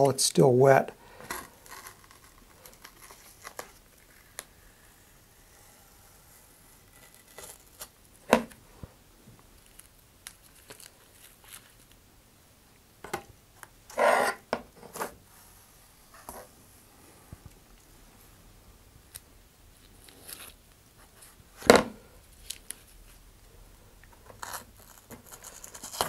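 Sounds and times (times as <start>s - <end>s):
tape crinkling: 1.2s - 4.6s, 6.8s - 8.6s, 9.5s - 12.0s, 22.3s - 23.2s, 24.1s - 26.0s
tape tearing rip: 24.4s - 26.0s.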